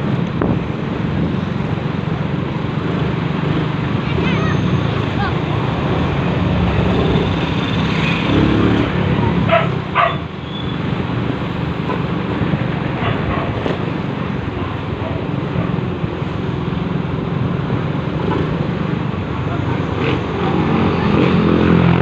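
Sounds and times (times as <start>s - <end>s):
vehicle road and engine noise: 0.0s - 22.0s.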